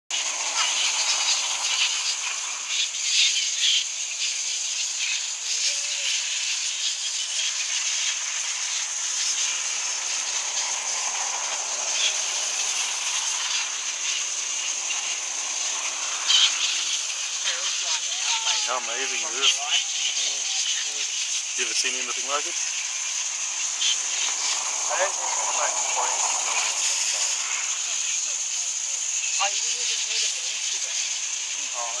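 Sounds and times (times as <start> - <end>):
bats squeaking and chattering: 0.1 - 32.0
steady high hiss: 0.1 - 32.0.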